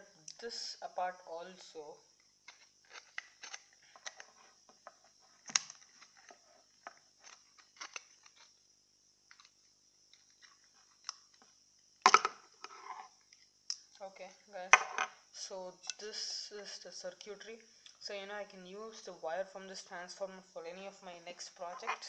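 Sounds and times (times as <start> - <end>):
plastic clicking and cracking: 2.4 - 8.5, 9.3 - 12.4.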